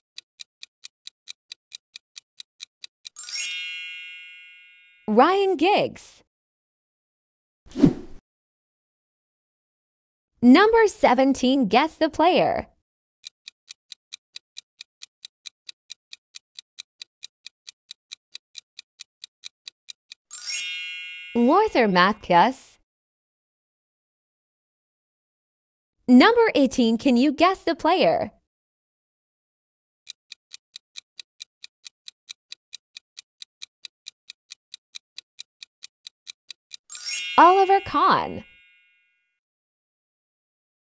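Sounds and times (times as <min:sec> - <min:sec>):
fast clock ticks: 0:00.0 - 0:03.2, 0:13.2 - 0:20.4, 0:30.1 - 0:38.3.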